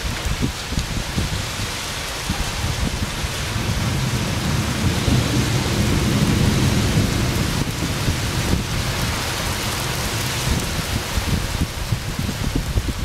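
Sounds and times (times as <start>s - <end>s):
heavy rain: 0.0s - 13.0s
rolling thunder: 2.2s - 13.0s.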